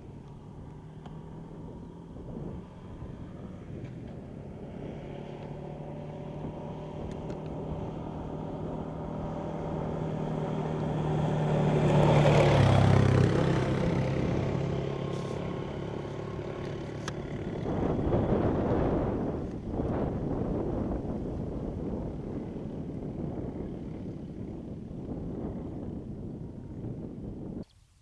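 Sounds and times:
quad bike engine passing: 0:00.0 - 0:27.7.

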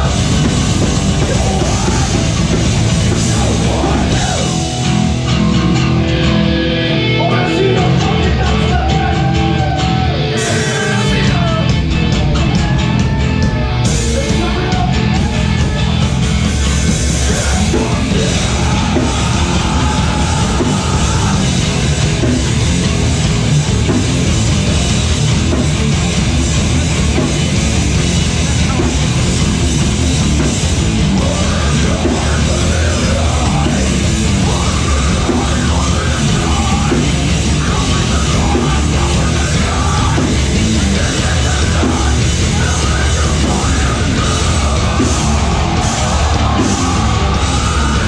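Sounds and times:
distorted electric guitars: 0:00.0 - 0:48.0
drums: 0:00.0 - 0:48.0
vocalist yelling: 0:07.0 - 0:16.0, 0:17.2 - 0:21.6, 0:40.9 - 0:48.0.

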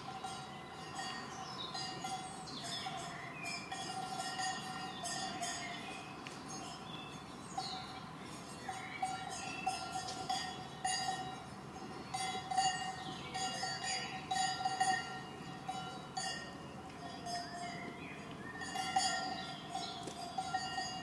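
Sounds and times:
cowbells clanking: 0:00.0 - 0:21.0.

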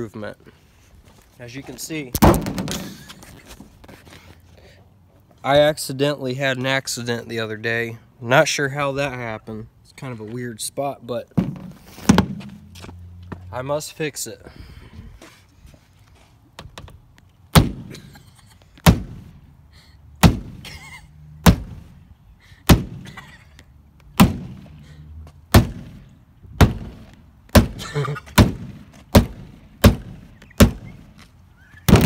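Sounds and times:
rubber mallet striking car door frame: 0:17.6 - 0:17.9, 0:28.4 - 0:30.9.

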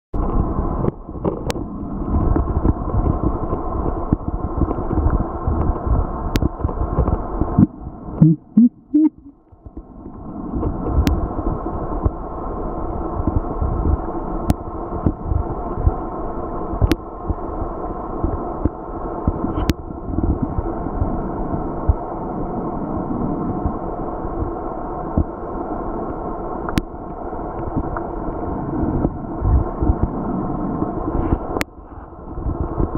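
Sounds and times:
muffled underwater crackling rumble: 0:00.1 - 0:32.9
short low blips: 0:08.2 - 0:09.4.

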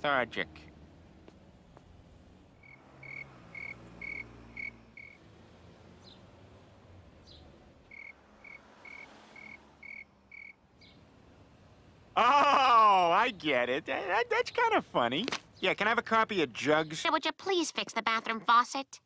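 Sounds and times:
cricket chirping: 0:02.6 - 0:05.2, 0:07.9 - 0:10.6.

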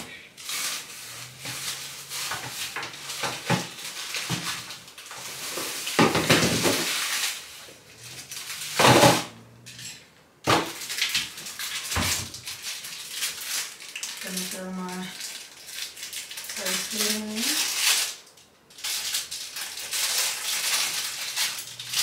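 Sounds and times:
plastic bottles clattering: 0:00.0 - 0:07.5, 0:08.1 - 0:14.4
rustling: 0:00.0 - 0:10.0, 0:18.8 - 0:22.0.

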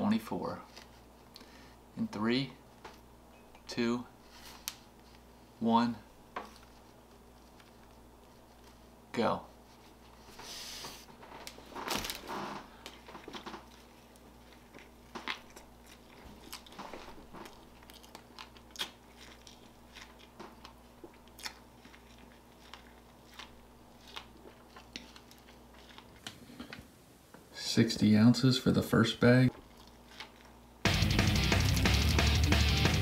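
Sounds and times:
person chewing with wet mouth smacks: 0:12.8 - 0:26.4, 0:29.5 - 0:30.6.

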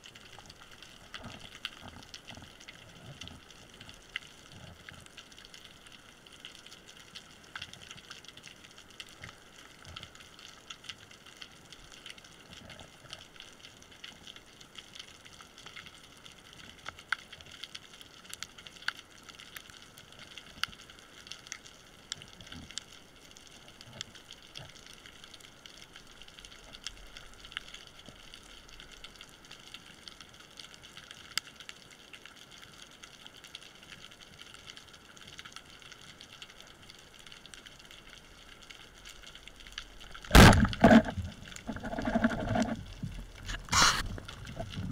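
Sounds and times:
underwater hiss: 0:43.4 - 0:44.6.

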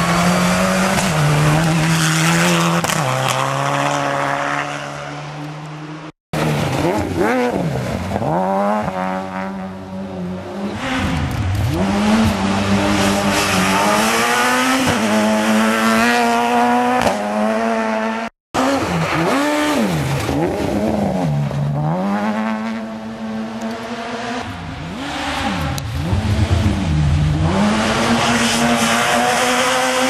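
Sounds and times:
rally car engines revving: 0:00.0 - 0:30.0.

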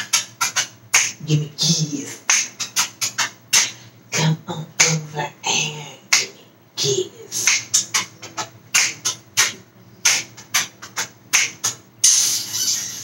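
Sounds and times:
hissing burst: 0:12.0 - 0:13.0.

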